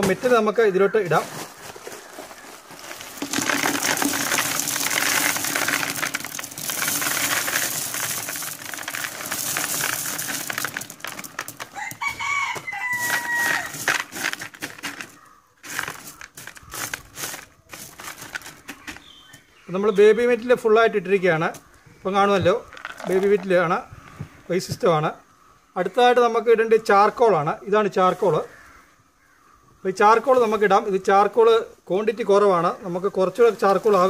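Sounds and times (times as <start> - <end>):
stones clicking spread by hand: 2.6 - 19.5, 22.4 - 24.2
stone chips pouring into bucket: 2.8 - 19.1, 22.7 - 23.5.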